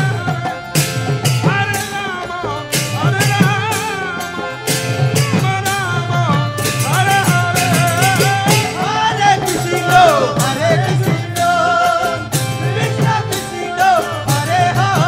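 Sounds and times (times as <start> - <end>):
drum beat: 0.0 - 15.0
men singing a chant together: 5.4 - 15.0.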